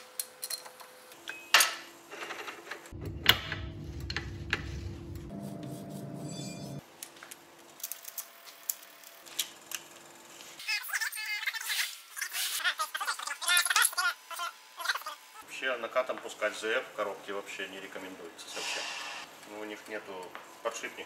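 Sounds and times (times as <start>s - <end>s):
low steady hum: 2.9s - 6.8s.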